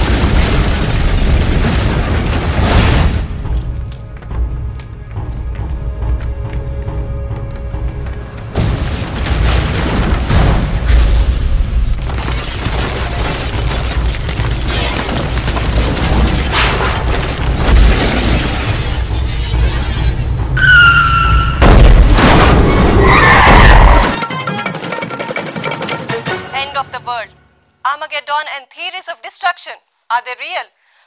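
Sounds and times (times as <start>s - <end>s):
booms and crashes of debris: 0.0s - 4.0s, 8.5s - 20.3s, 21.4s - 24.2s
music: 3.2s - 10.2s, 16.9s - 27.8s.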